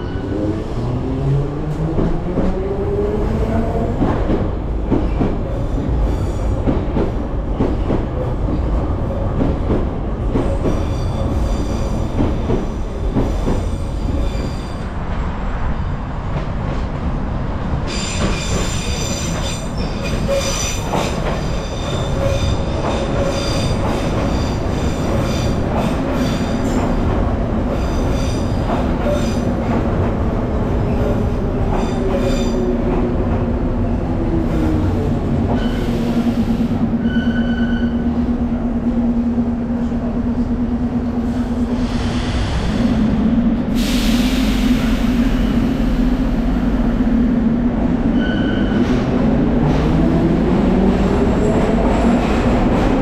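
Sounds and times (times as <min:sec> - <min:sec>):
train wheels squealing: 0:10.6 - 0:12.2, 0:13.5 - 0:14.9, 0:17.9 - 0:26.8, 0:31.7 - 0:32.7, 0:35.5 - 0:38.2, 0:48.1 - 0:49.0
air hiss: 0:43.7 - 0:46.5.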